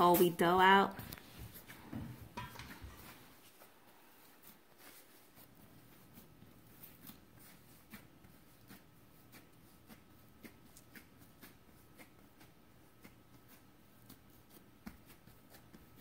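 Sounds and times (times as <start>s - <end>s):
hands tapping dough on stone: 7.9s - 16.0s.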